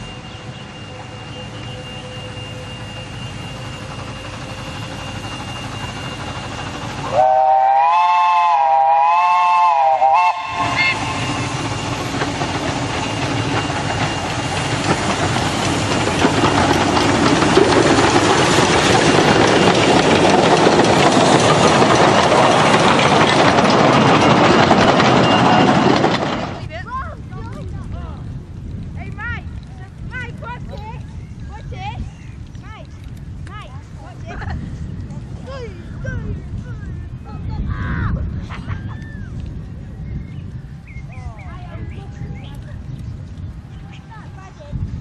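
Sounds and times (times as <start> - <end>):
steam whistle: 0.0 - 4.9, 6.1 - 12.0
steam train running noise: 0.0 - 45.0.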